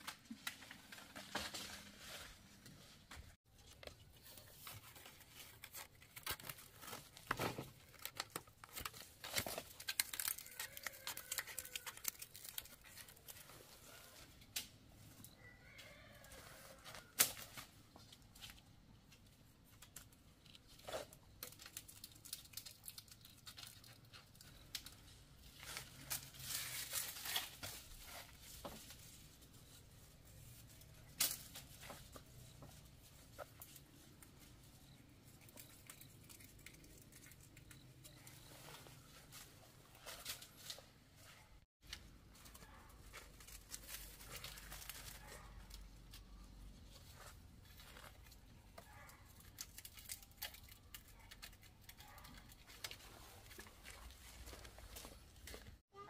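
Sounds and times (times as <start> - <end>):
plant material tearing and crackling: 4.4 - 14.7, 19.8 - 28.8, 42.4 - 46.5, 47.2 - 55.6.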